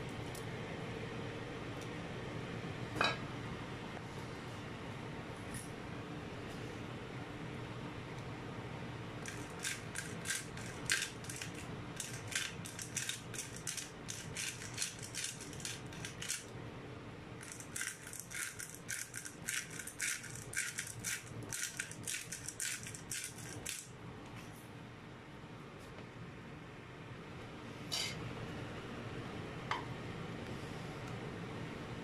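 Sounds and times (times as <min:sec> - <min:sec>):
pepper mill grinding: 0:09.2 - 0:16.5, 0:17.4 - 0:23.9.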